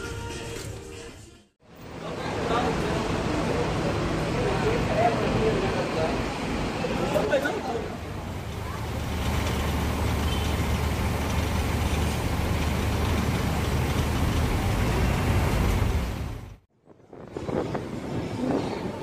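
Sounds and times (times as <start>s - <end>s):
road traffic noise: 1.6s - 16.6s
heavy vehicle engine rumbling: 1.8s - 16.6s.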